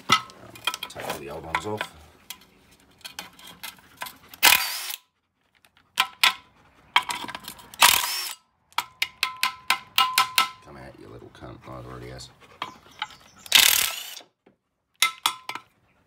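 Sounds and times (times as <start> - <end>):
impact wrench hammering: 7.8 - 10.6.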